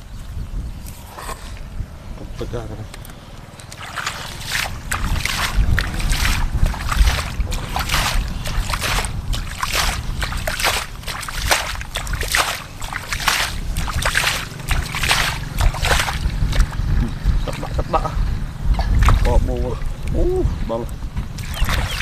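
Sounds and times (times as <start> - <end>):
muddy water splashing: 3.1 - 22.0
low rumble: 4.1 - 11.3, 11.9 - 21.4.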